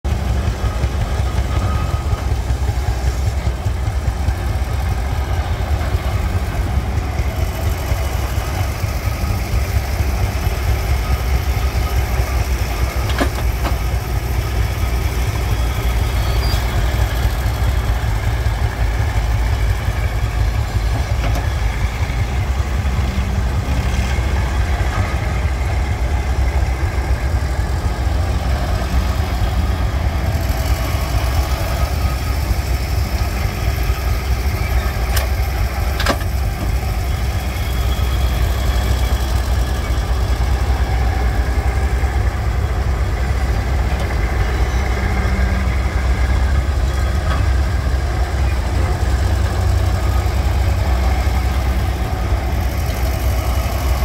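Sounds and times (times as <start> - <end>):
excavator engine running: 0.0 - 54.0.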